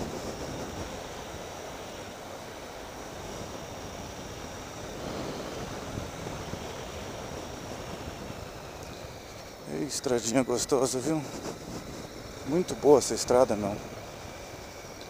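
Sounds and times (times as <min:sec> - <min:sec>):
wind rushing over microphone: 0:00.0 - 0:15.0.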